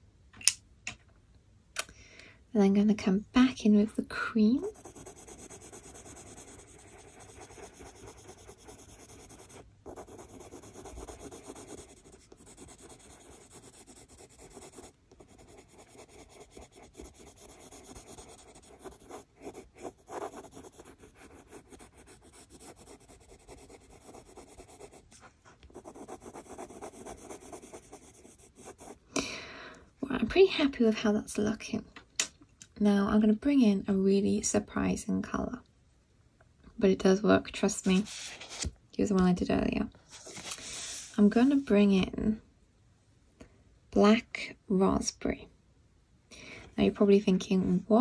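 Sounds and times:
colored pencil scratching paper: 4.5s - 29.1s, 37.8s - 38.7s.

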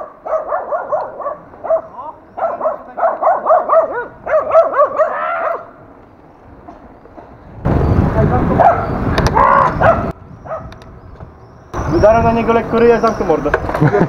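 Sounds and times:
dog barking: 0.0s - 5.8s, 8.6s - 8.9s, 9.8s - 10.7s.

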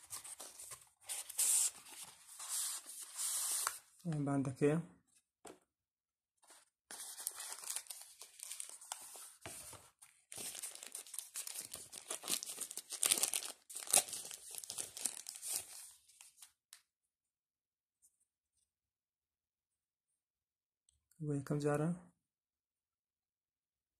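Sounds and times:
plastic bag crinkling: 10.4s - 15.6s.

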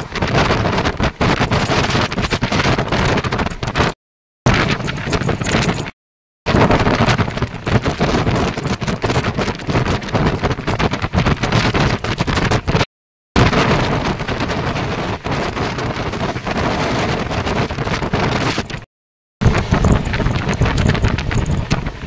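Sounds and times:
wind buffeting microphone: 0.0s - 5.9s, 6.5s - 22.0s
train rushing and rattling: 19.4s - 22.0s.

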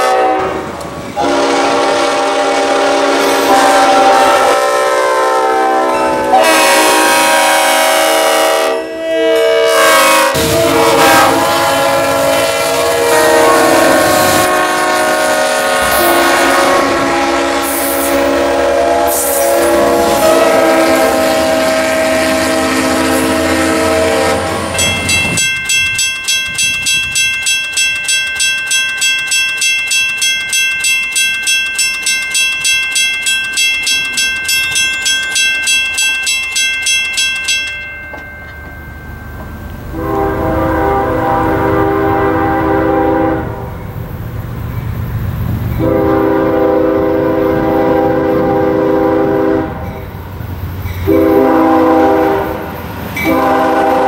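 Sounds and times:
locomotive air horn chords: 0.0s - 25.4s, 39.9s - 43.8s, 45.8s - 49.9s, 51.0s - 54.0s
railroad crossing bell ringing: 0.0s - 54.0s.

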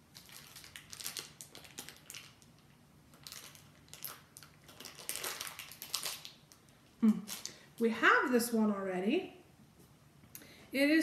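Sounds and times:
plastic packaging crinkling: 0.0s - 7.8s.

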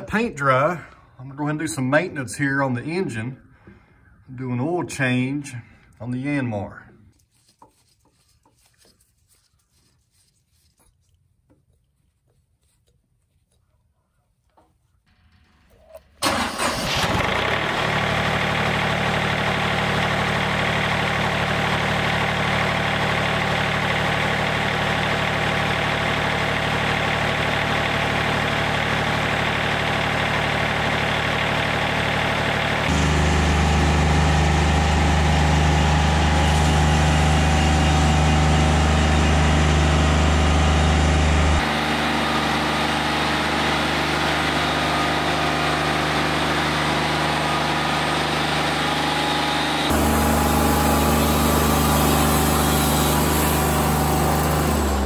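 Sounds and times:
diesel engine running: 16.2s - 55.0s.

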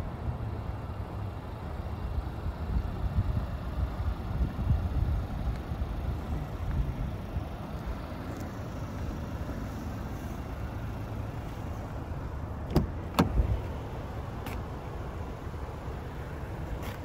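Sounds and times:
car door handle and latch clicks: 12.6s - 13.6s.

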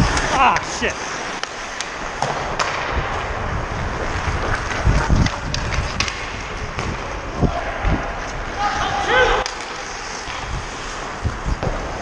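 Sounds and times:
wind rumble on microphone: 0.0s - 0.4s, 2.8s - 9.4s, 10.4s - 12.0s
skates scraping on ice: 0.0s - 12.0s
sticks and puck clacking: 0.0s - 12.0s.

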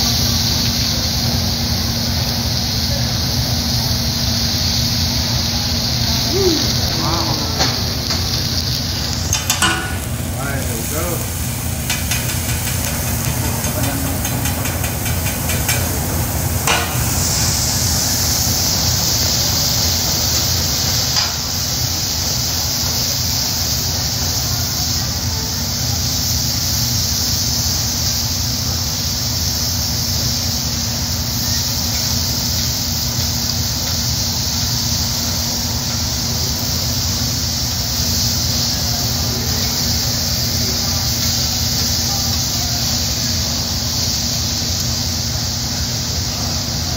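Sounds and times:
steam hissing and sizzling: 0.0s - 46.9s
steady low hum: 5.2s - 22.6s.

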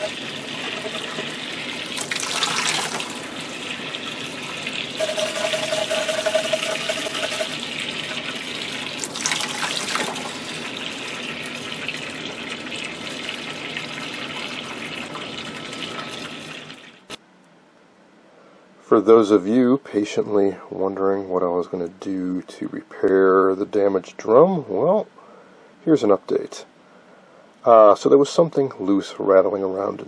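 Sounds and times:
water splashing: 0.0s - 7.5s
water running from a faucet: 0.0s - 17.2s.

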